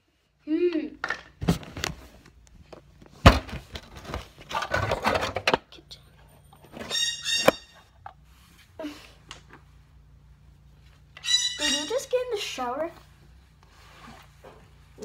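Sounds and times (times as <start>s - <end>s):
high-pitched toy squeak: 6.8s - 7.9s, 11.2s - 12.6s
rustling: 11.8s - 15.0s.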